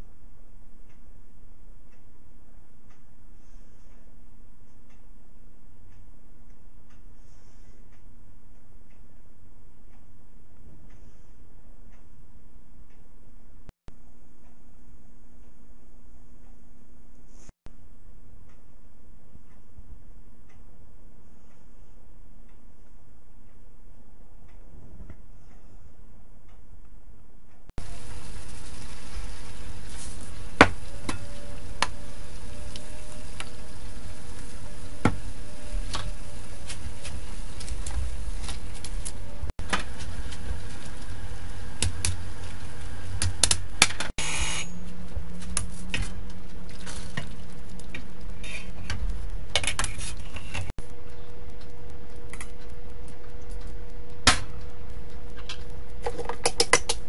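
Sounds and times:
water boiling in a pot: 27.8s - 57.0s.

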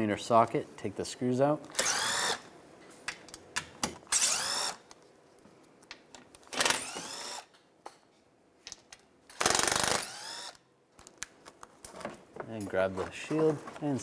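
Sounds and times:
cordless drill spinning screws: 1.7s - 2.5s, 4.1s - 4.9s, 6.5s - 7.5s, 9.3s - 10.6s.

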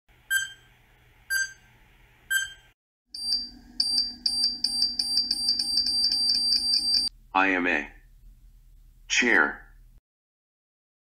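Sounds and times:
short electronic beeps: 0.3s - 0.7s, 2.3s - 7.1s
fast high-pitched alarm: 3.2s - 7.1s.

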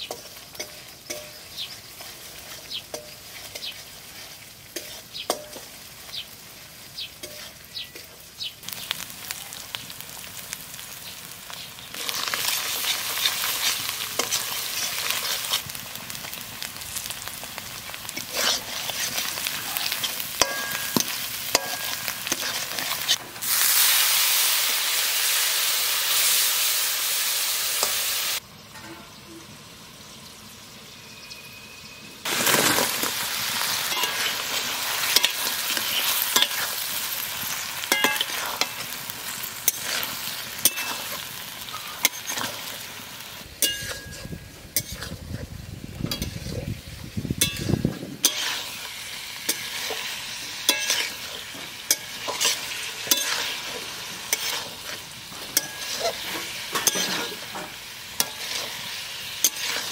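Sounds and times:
metal spatula scraping pan: 0.0s - 5.8s, 12.0s - 15.6s, 18.1s - 23.2s, 33.6s - 36.9s, 39.6s - 42.7s, 43.6s - 45.4s, 47.4s - 48.8s, 49.5s - 59.9s
food sizzling in pan: 0.0s - 28.5s, 29.2s - 59.9s.

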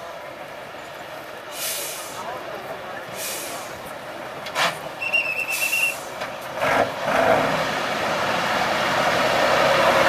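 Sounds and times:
truck engine working hard: 0.0s - 10.0s
brief hisses: 4.6s - 6.2s.

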